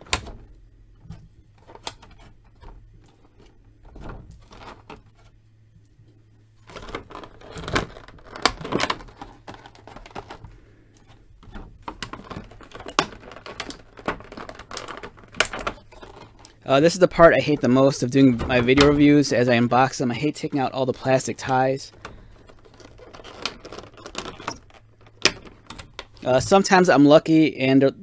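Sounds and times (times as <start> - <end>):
plastic tray crinkling: 0.0 - 5.8, 6.6 - 26.9.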